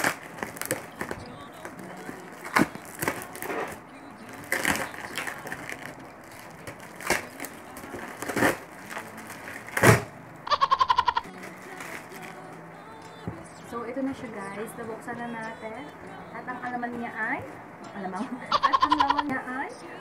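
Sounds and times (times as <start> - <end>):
plastic wrap tearing and crinkling: 0.0 - 10.2, 11.2 - 12.5.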